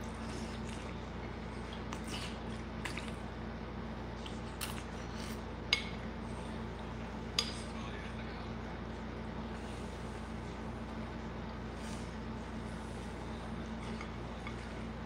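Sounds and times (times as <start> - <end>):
man chewing and sipping: 0.0 - 5.6
steady low hum: 0.0 - 15.0.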